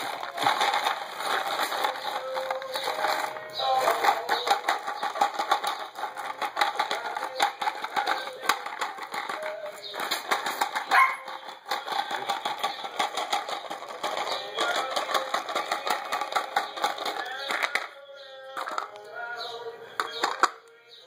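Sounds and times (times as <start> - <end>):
clicking and rustling: 0.0 - 18.0, 18.6 - 19.1, 20.0 - 20.8
puppies yipping and whining: 10.8 - 11.4
puppy yelping: 10.9 - 11.3.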